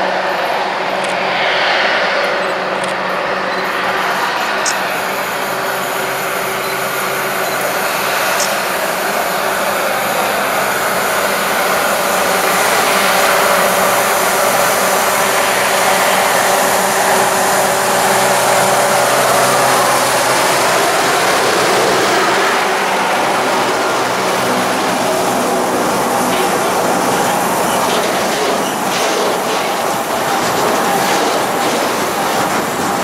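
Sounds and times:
diesel locomotive engine running: 0:00.0 - 0:33.0.

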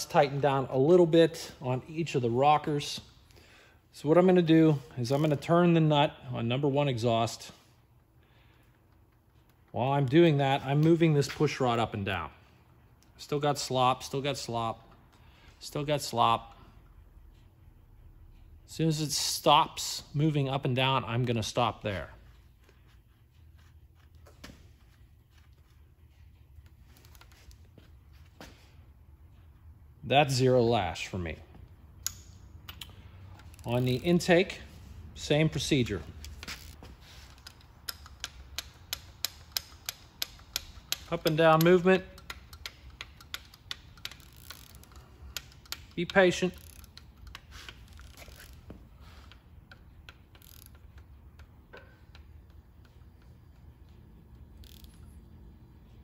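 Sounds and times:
faint metallic clicks and ticks: 0:37.3 - 0:48.5.

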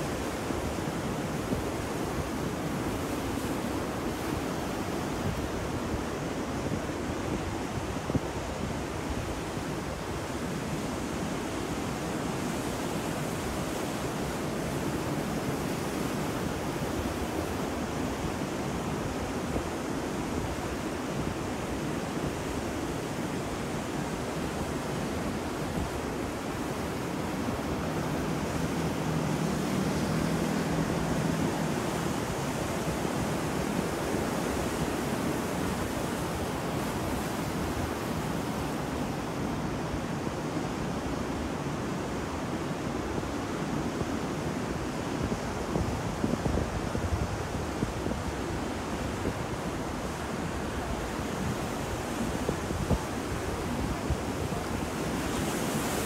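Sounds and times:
ocean waves breaking: 0:23.2 - 0:40.2.

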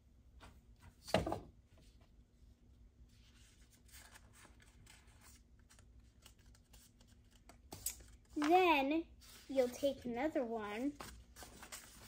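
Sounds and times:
paper rustling: 0:03.2 - 0:12.0.

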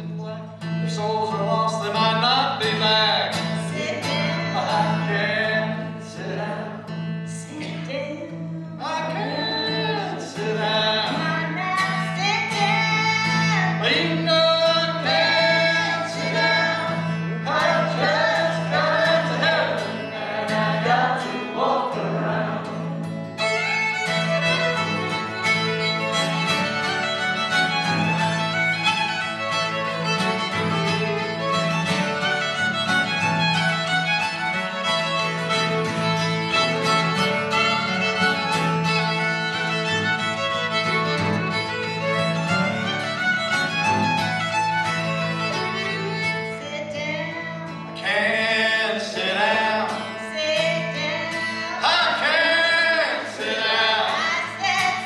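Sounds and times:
strummed acoustic guitar: 0:00.0 - 0:55.0
people singing: 0:01.3 - 0:25.0, 0:48.0 - 0:55.0
fiddle playing: 0:14.8 - 0:47.6.

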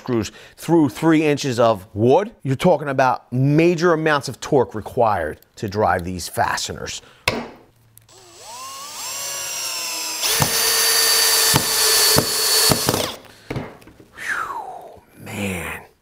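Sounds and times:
drill driving screw into wood: 0:08.1 - 0:13.3
power drill whining: 0:08.1 - 0:13.3
sharp drill clicks: 0:08.1 - 0:13.3.

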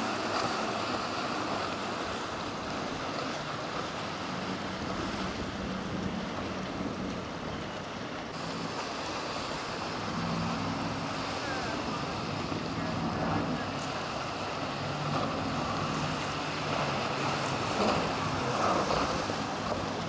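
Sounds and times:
powerboat engines droning: 0:00.0 - 0:20.0
waves and wake rushing: 0:00.0 - 0:20.0.

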